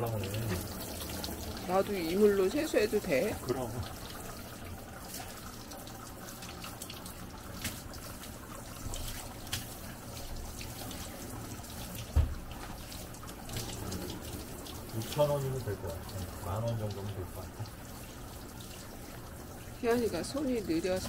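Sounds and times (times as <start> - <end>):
shower water spraying and splashing: 0.0 - 21.0
low thump: 12.1 - 12.4.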